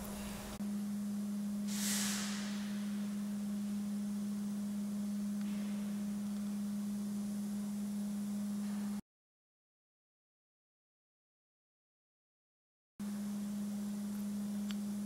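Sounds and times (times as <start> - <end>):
low-pitched hum: 0.0 - 9.0, 13.0 - 15.0
brief hiss: 1.7 - 2.8.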